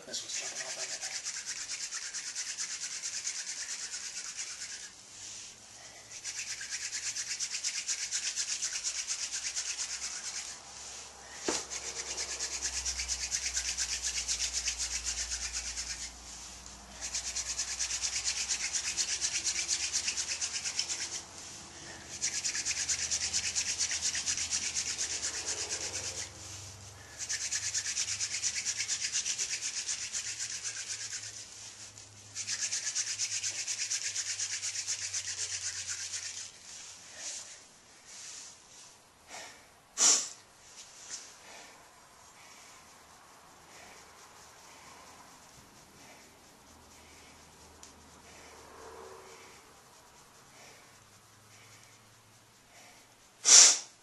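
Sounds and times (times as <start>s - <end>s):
wooden spindle rubbing rasp: 0.0s - 5.5s, 6.1s - 37.5s.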